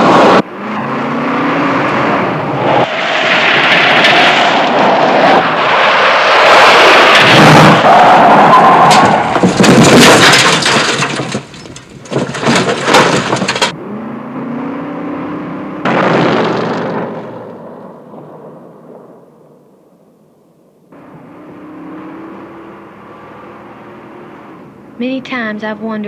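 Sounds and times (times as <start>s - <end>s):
tyres on gravel: 2.9s - 13.8s
stones cracking: 8.9s - 13.7s
car passing into distance: 13.7s - 19.7s, 21.0s - 25.3s.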